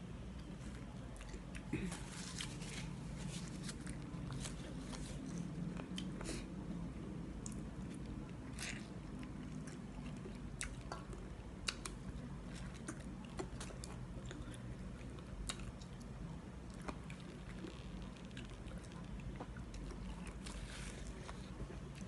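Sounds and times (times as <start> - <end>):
person chewing noodles: 7.4 - 22.0.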